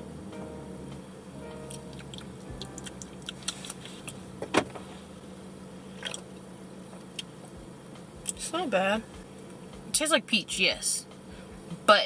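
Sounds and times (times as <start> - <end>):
low hum inside car: 0.0 - 12.0
car door locks clunking: 4.4 - 4.8.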